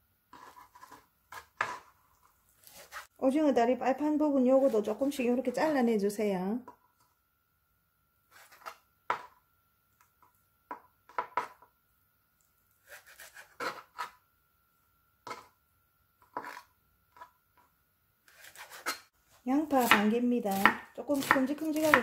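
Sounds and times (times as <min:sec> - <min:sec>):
knife cutting on plastic board: 0:00.3 - 0:02.0, 0:02.6 - 0:03.1, 0:08.3 - 0:09.3, 0:12.8 - 0:14.2, 0:16.2 - 0:17.3, 0:18.3 - 0:19.1.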